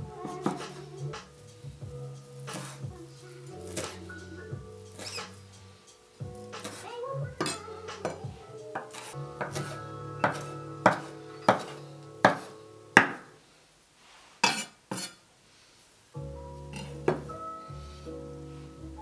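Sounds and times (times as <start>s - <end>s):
soft background music: 0.0s - 13.4s, 16.2s - 19.0s
knife chopping on wooden board: 8.8s - 13.3s.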